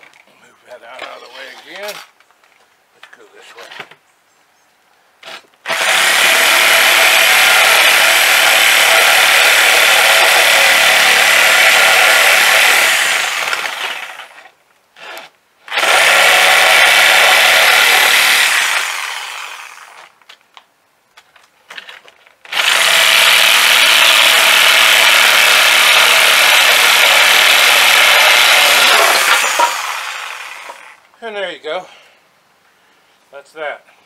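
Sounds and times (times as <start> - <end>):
reciprocating saw cutting plywood: 5.3 - 20.1, 22.5 - 31.0.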